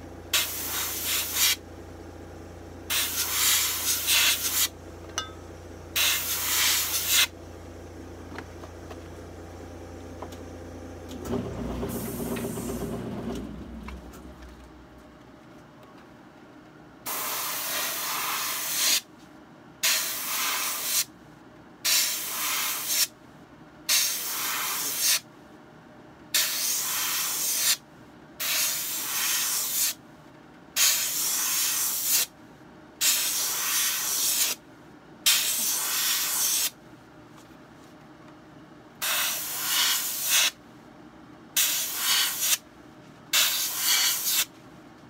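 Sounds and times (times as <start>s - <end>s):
airbrush hissing: 0.4s - 1.6s, 2.9s - 4.7s, 6.0s - 7.3s, 17.1s - 19.0s, 19.8s - 21.1s, 21.9s - 23.1s, 23.9s - 25.2s, 26.4s - 27.8s, 28.4s - 30.0s, 30.8s - 32.3s, 33.0s - 34.6s, 35.3s - 36.7s, 39.0s - 40.6s, 41.6s - 42.6s, 43.4s - 44.5s.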